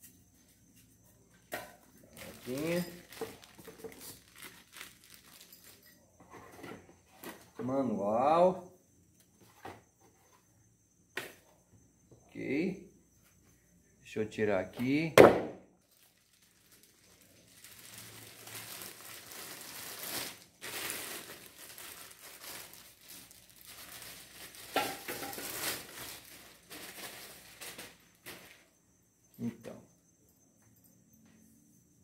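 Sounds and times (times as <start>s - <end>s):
plastic bag crinkling and rustling: 2.0s - 5.9s, 15.8s - 28.6s.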